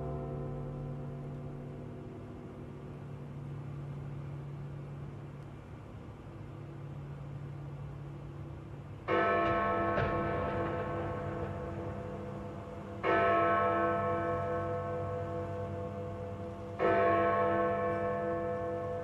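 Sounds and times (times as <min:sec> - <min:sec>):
large bell ringing: 0:09.1 - 0:19.0.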